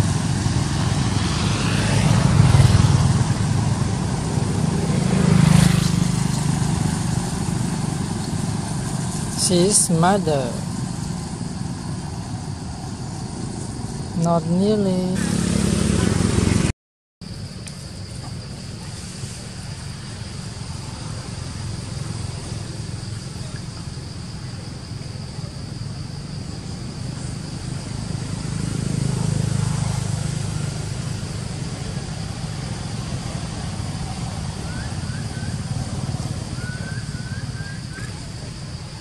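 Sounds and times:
high insect drone: 0:00.0 - 0:39.0.

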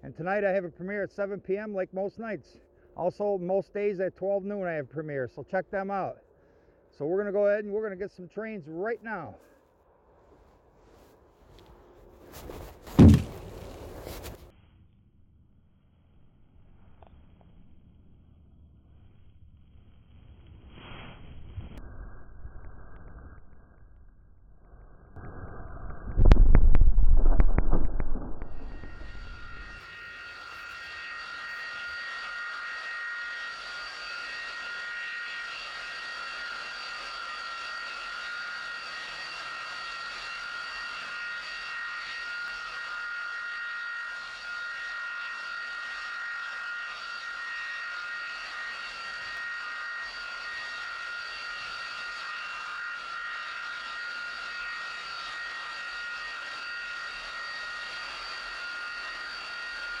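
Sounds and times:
jet engine snowblower whine: 0:10.2 - 0:14.5, 0:24.1 - 1:00.0.

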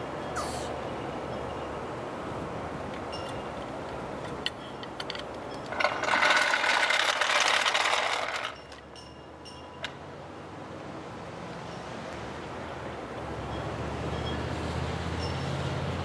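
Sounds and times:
jack wheels rolling on asphalt: 0:02.3 - 0:10.0.

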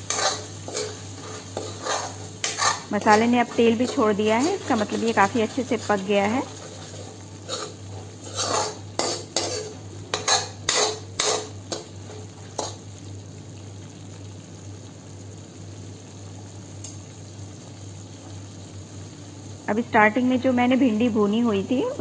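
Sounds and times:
ladle scraping a metal pot: 0:00.0 - 0:12.7.

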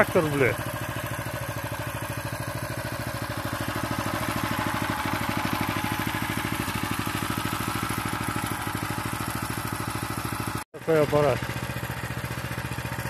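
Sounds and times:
small petrol engine running: 0:00.0 - 0:13.0.

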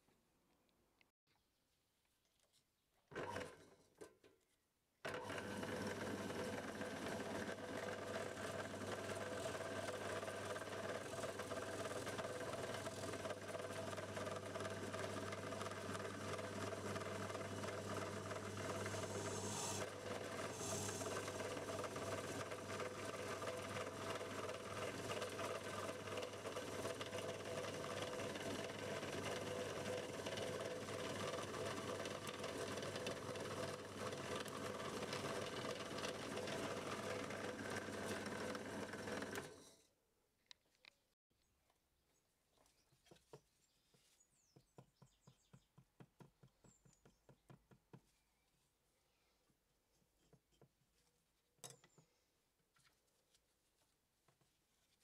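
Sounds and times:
drill press drilling wood: 0:05.1 - 0:39.7.

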